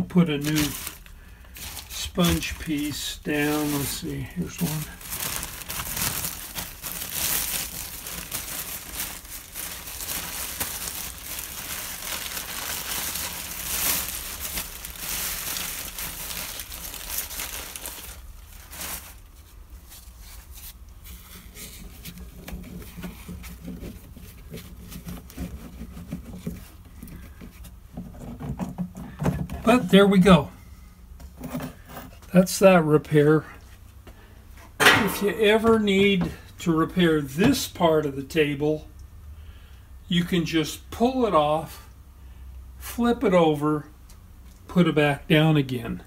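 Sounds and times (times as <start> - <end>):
plastic bag crinkling: 0.0 - 27.2
handling noises: 0.0 - 30.3, 34.6 - 36.6.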